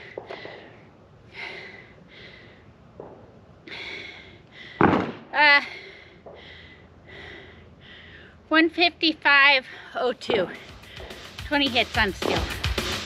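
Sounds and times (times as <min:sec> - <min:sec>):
woman breathing hard: 0:00.0 - 0:02.9, 0:03.6 - 0:08.5, 0:10.6 - 0:11.4.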